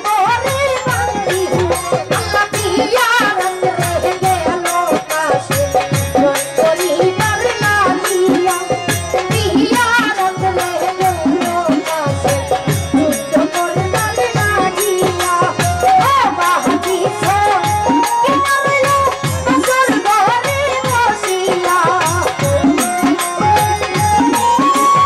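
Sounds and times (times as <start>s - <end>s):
woman singing folk lament: 0.0s - 12.4s
drums beating: 0.0s - 25.0s.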